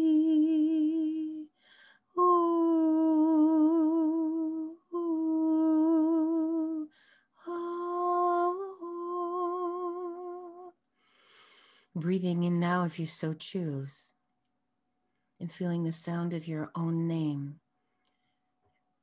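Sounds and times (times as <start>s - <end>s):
woman humming: 0.0s - 1.4s, 2.2s - 10.7s
breaths: 1.6s - 2.1s, 6.9s - 7.4s, 10.9s - 12.0s, 17.8s - 18.6s.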